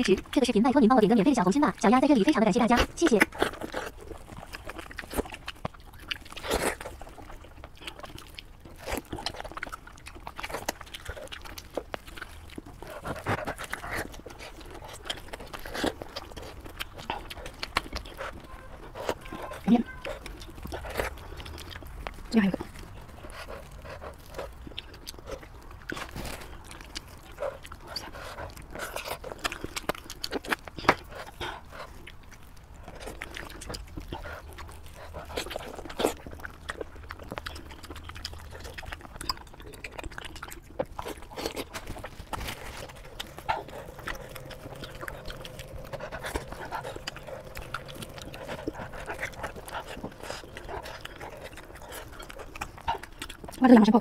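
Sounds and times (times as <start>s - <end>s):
chewing clicks: 0.0s - 54.0s
wet squelches: 0.0s - 54.0s
meat tearing: 1.9s - 54.0s.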